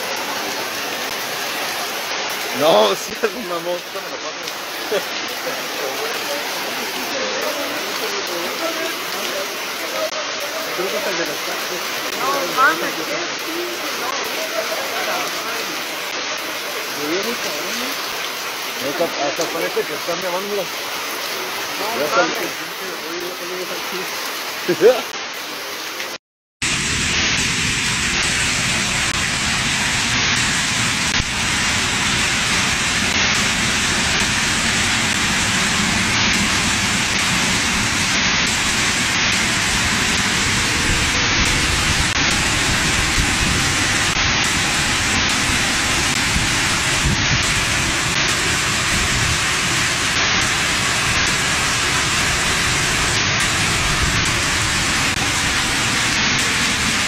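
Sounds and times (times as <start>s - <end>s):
floodwater rushing roar: 0.0s - 57.0s.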